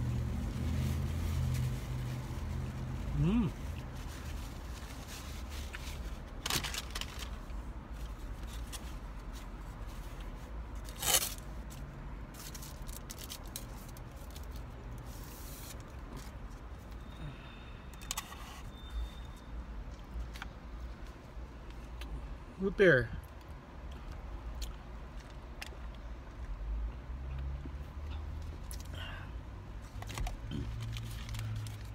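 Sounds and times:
paper wrapper crinkling: 0:04.0 - 0:07.5.

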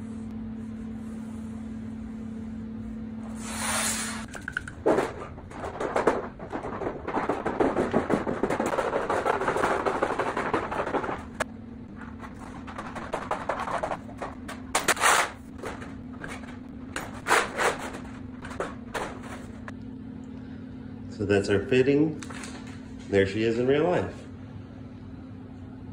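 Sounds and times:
steady low hum: 0:00.0 - 0:25.9.

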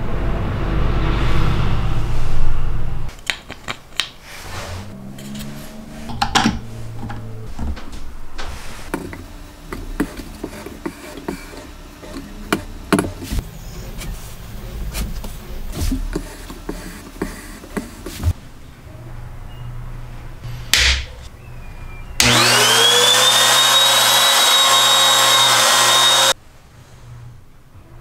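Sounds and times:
parts knocking on wooden workbench: 0:06.1 - 0:07.9, 0:08.9 - 0:13.4.

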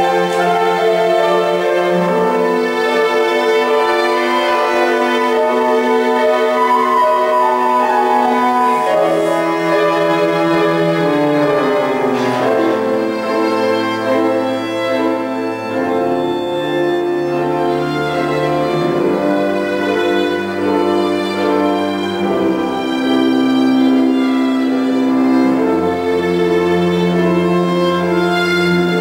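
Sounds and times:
cello bowing: 0:00.0 - 0:29.0
piano playing: 0:00.0 - 0:29.0
violin bowing: 0:00.0 - 0:29.0.

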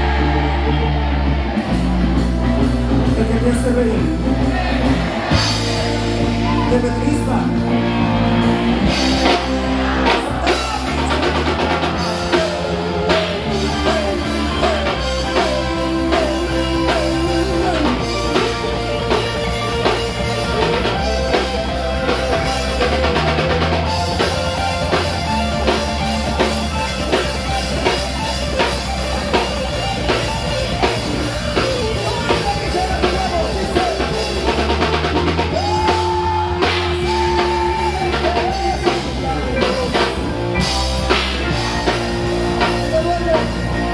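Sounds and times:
drum kit beat: 0:00.0 - 0:43.9
electric guitar: 0:00.0 - 0:43.9
person singing: 0:09.2 - 0:22.2, 0:30.7 - 0:34.8, 0:35.4 - 0:40.3.

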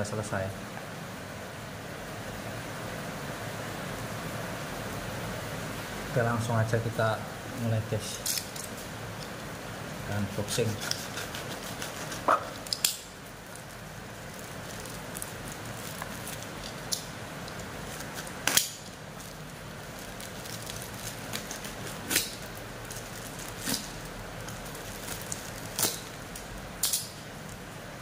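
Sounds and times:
rain hiss: 0:00.0 - 0:28.0
packaging crackling and tearing: 0:08.1 - 0:09.4, 0:10.4 - 0:27.7.

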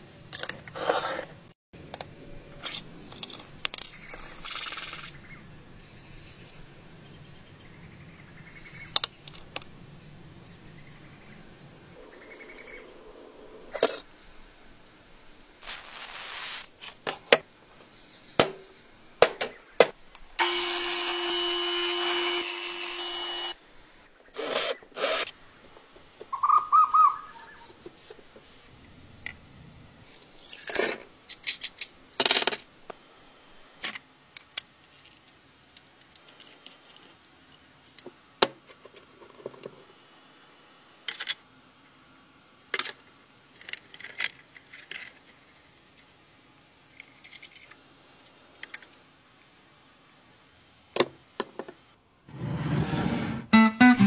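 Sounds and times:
power tool running: 0:20.4 - 0:23.6, 0:24.4 - 0:25.3.

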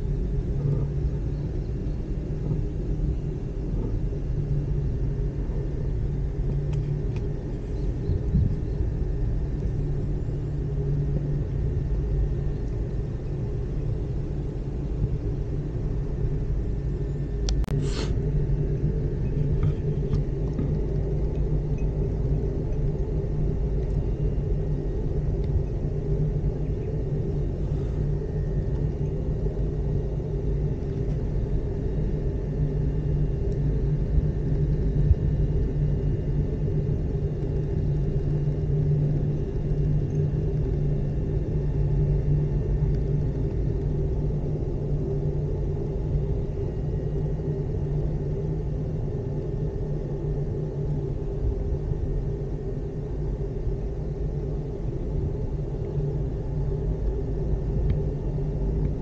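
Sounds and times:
gondola rumbling: 0:00.0 - 0:17.4.

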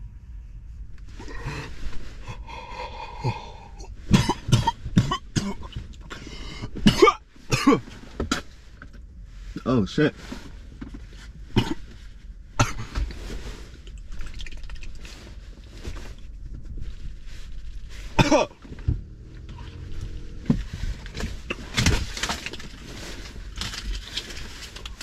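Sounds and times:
man coughing: 0:03.1 - 0:05.7, 0:06.8 - 0:07.8, 0:18.2 - 0:18.6.

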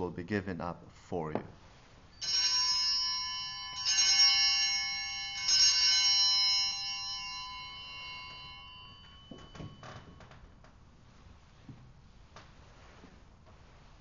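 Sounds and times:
bells ringing: 0:02.1 - 0:10.6.

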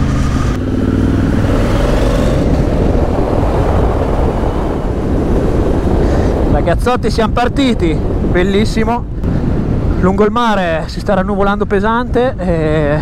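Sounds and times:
motorcycle engine pulling away: 0:00.0 - 0:05.2
wind rushing on microphone: 0:00.0 - 0:13.0.

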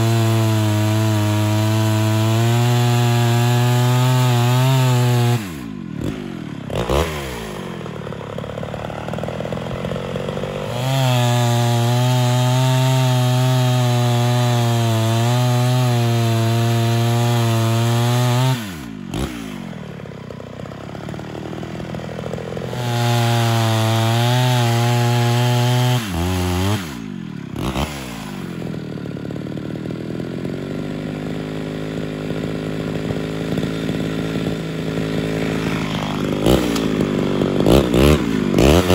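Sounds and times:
chainsaw cutting wood: 0:00.0 - 0:38.9
chainsaw idling: 0:00.0 - 0:38.9.

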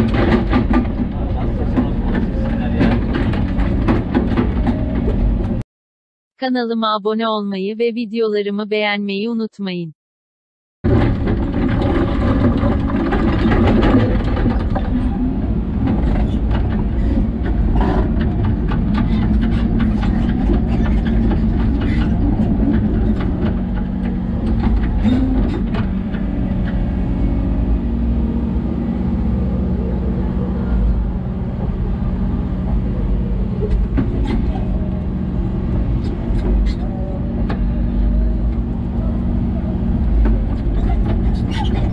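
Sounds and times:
excavator diesel engine running: 0:10.9 - 0:41.9.

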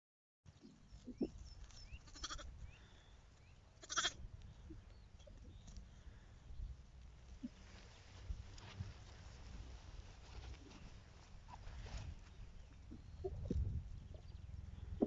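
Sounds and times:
sheep bleating: 0:02.0 - 0:02.5, 0:03.8 - 0:04.2.

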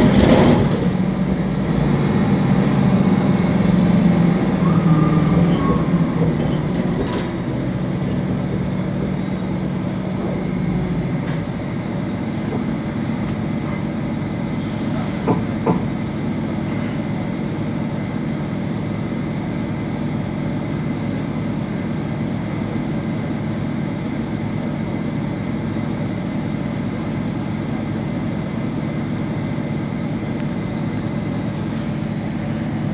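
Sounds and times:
deeper hum: 0:00.0 - 0:14.5
bus engine drone: 0:00.0 - 0:32.9.

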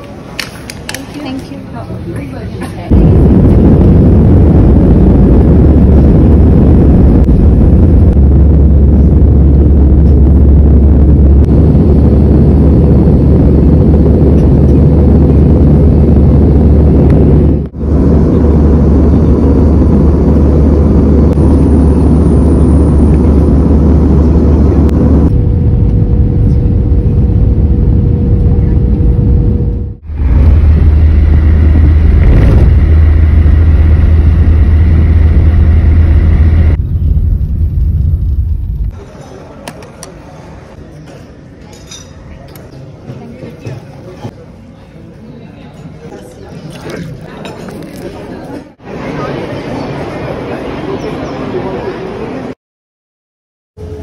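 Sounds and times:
jet engine cabin rumble: 0:02.7 - 0:39.1
faint steady whine: 0:02.9 - 0:39.0.

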